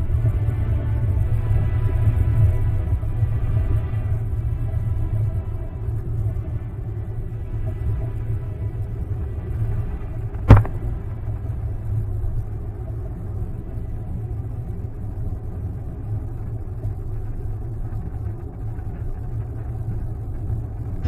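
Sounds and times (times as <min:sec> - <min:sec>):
engine and tyres rumbling: 0:00.0 - 0:21.0
sharp knock: 0:10.4 - 0:10.8.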